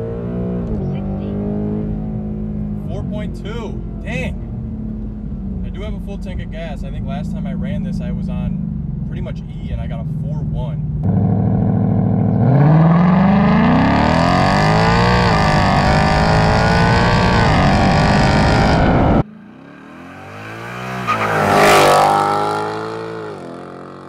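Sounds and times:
car engine accelerating hard: 0:11.0 - 0:24.0.

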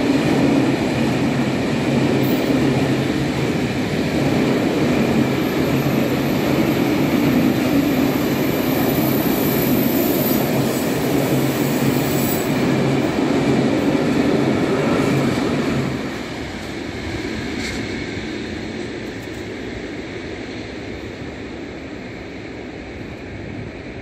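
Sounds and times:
train wheel squeal: 0:05.3 - 0:12.8.

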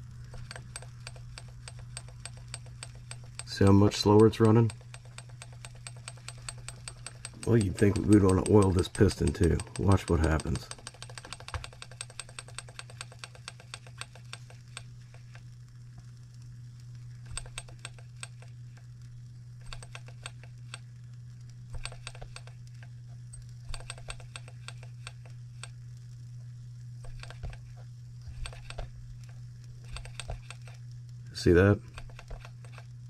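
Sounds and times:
steady low hum: 0:00.0 - 0:33.0
model engine clicking: 0:00.2 - 0:15.4, 0:17.3 - 0:18.8, 0:19.6 - 0:20.9, 0:21.7 - 0:25.8, 0:28.3 - 0:30.8, 0:31.9 - 0:32.9.

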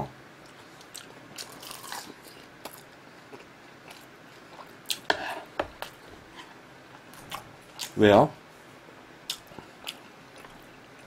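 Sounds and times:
chewing food: 0:00.4 - 0:05.2, 0:09.3 - 0:11.0.

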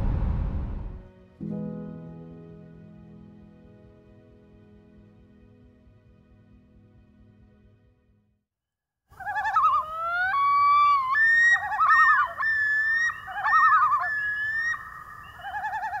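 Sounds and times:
loon tremolo calls: 0:09.1 - 0:16.0
loon wailing calls: 0:09.1 - 0:16.0.

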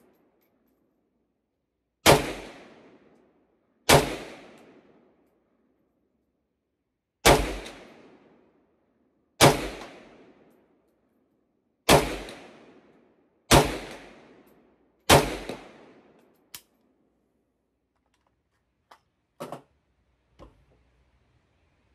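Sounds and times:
rifle shots with echo: 0:02.0 - 0:03.1, 0:03.9 - 0:05.1, 0:07.2 - 0:08.5, 0:09.4 - 0:10.5, 0:11.9 - 0:14.5, 0:15.1 - 0:16.2.

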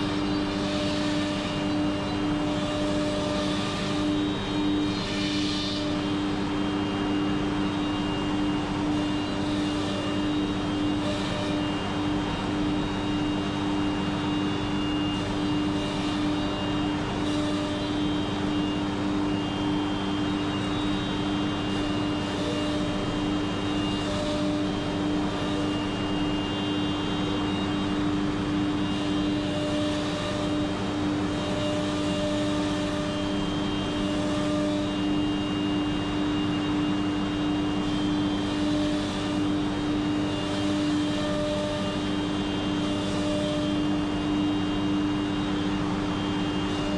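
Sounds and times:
high machine whining tones: 0:00.0 - 0:46.9
machine mechanical hum: 0:00.0 - 0:46.9.

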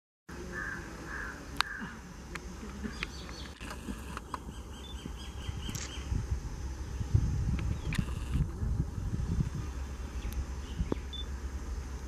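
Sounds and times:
insect buzzing: 0:00.3 - 0:12.0
birds chirping: 0:00.4 - 0:08.4, 0:09.6 - 0:12.0
sharp click: 0:05.7 - 0:06.0.

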